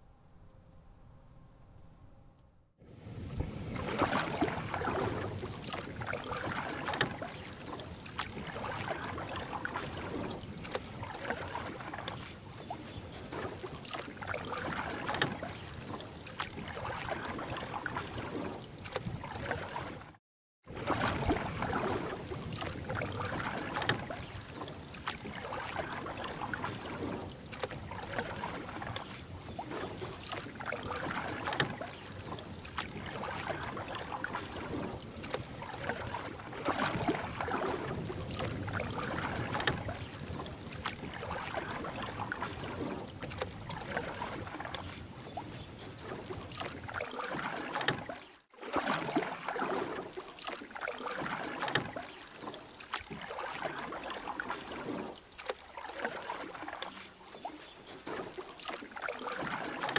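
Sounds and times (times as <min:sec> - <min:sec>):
paddle strokes splashing in water: 0:02.8 - 0:59.9.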